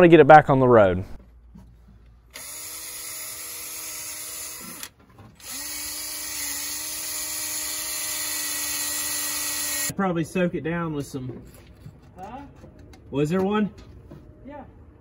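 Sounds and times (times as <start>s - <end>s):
drill with wire wheel whining: 2.3s - 9.9s.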